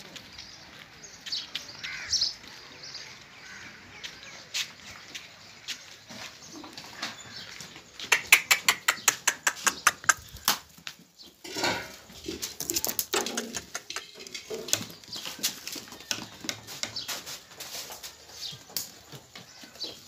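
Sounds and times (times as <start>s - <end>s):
hooves tapping on concrete: 0.0s - 20.0s
scuffling and rustling: 14.4s - 20.0s.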